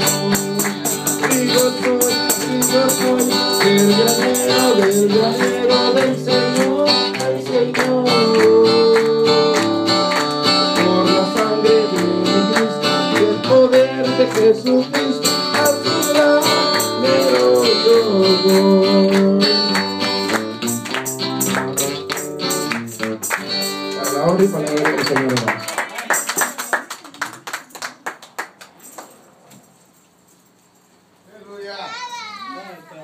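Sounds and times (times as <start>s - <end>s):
tambourine-like percussion: 0.0s - 7.2s, 8.2s - 25.3s, 26.0s - 26.9s
man singing into a microphone: 0.0s - 9.8s, 10.6s - 20.0s
strummed acoustic guitar: 0.0s - 25.4s.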